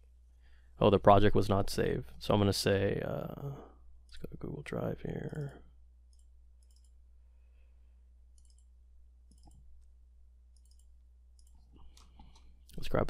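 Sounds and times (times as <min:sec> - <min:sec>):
low steady hum: 0:00.0 - 0:13.0
computer mouse clicks: 0:06.1 - 0:07.0, 0:08.4 - 0:08.7, 0:09.3 - 0:09.7, 0:10.6 - 0:12.8.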